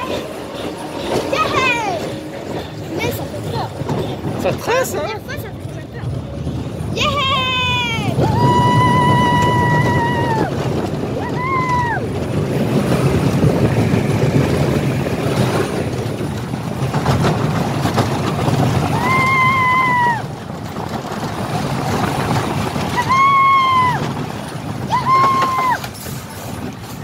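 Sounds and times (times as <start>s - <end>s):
roller coaster rumbling on track: 0.0s - 27.0s
rider screaming: 7.0s - 12.3s, 18.8s - 20.4s, 22.8s - 26.0s.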